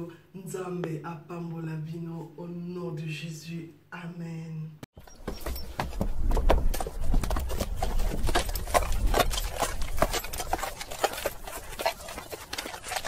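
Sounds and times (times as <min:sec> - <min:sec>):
animal knocking and clicking: 0:05.0 - 0:13.0.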